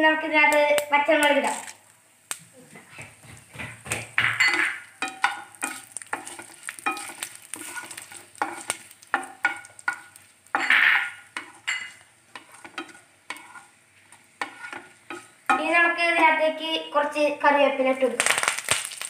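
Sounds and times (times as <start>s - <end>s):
seeds sizzling and crackling in oil: 0.5s - 16.5s, 18.0s - 19.0s
wooden spatula stirring in pan: 2.7s - 16.6s.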